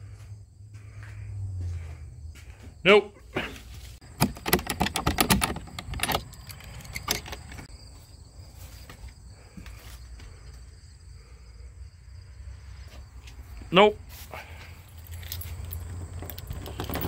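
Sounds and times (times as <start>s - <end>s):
padlock and hasp rattling: 4.0s - 7.7s, 14.9s - 17.0s.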